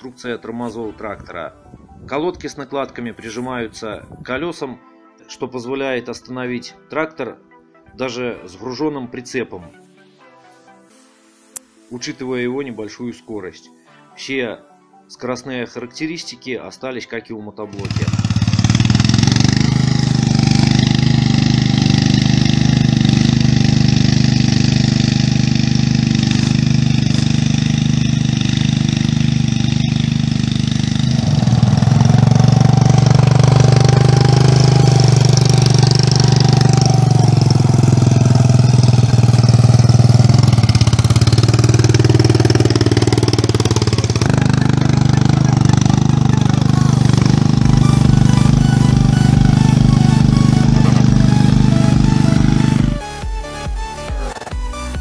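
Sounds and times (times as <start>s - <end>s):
single-cylinder engine running: 17.7s - 55.0s.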